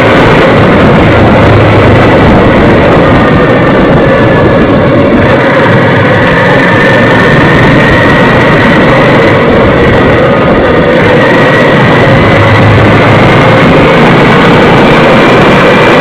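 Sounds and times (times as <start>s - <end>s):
faint rising whine: 0.0s - 16.0s
motorcycle engine running: 0.0s - 16.0s
wind rush on microphone: 0.0s - 16.0s.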